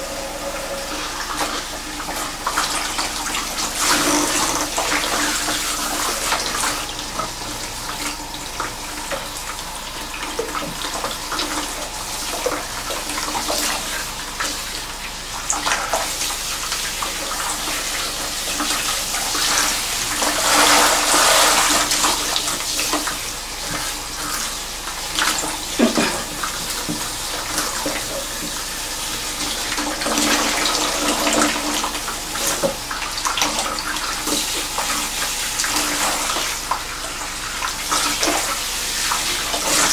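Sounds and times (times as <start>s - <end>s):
shower sprayer running through hair: 0.0s - 39.9s.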